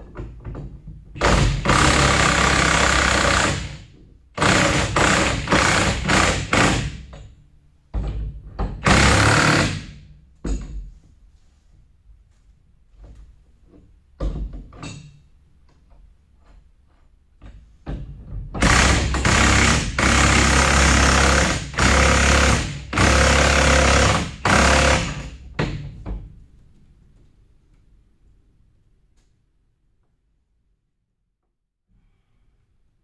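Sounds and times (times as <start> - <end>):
impact wrench hammering: 0.5 - 7.4, 8.0 - 10.8, 17.4 - 26.3.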